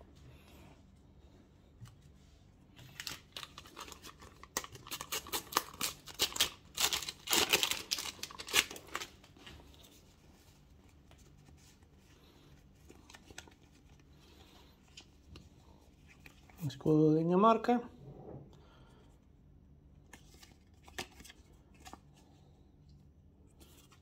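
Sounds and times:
paper packet tearing and crinkling: 0:02.8 - 0:09.5.

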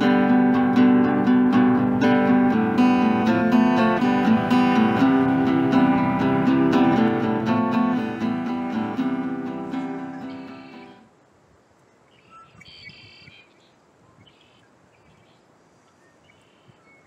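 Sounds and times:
acoustic guitar strumming chords: 0:00.0 - 0:11.1.

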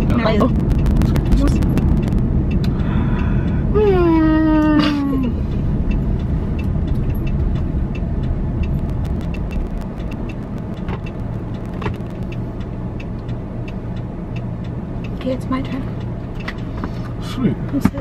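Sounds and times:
hazard flasher ticking: 0:00.0 - 0:02.9, 0:05.9 - 0:13.4
car driving low rumble: 0:00.0 - 0:18.0.

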